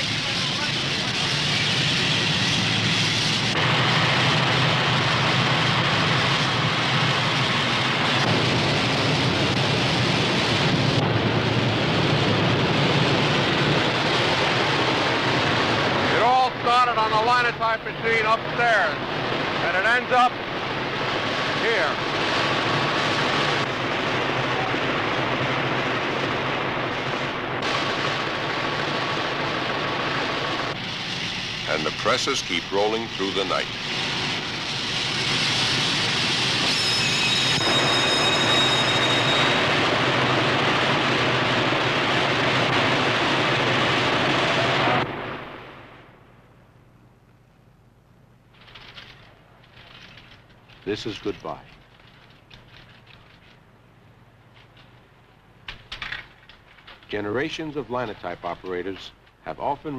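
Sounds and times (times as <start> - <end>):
printing presses running: 12.5 - 45.1.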